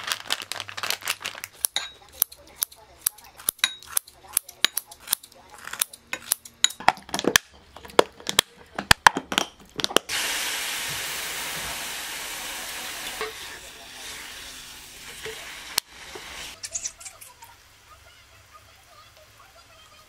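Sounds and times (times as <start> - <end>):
meat sizzling in a frying pan: 10.1 - 16.6.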